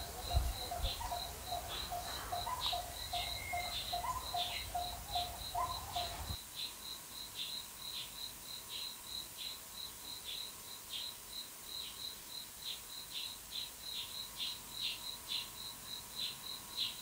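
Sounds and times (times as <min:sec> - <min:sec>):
insect chirping in short pulses: 0:00.0 - 0:17.0.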